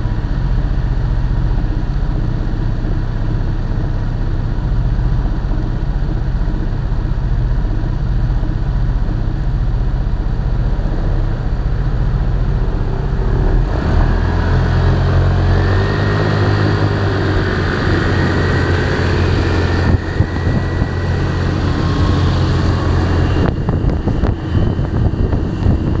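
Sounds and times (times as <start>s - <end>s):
road noise: 0.0s - 26.0s
scooter engine rumble: 0.0s - 26.0s
wind noise: 4.5s - 26.0s.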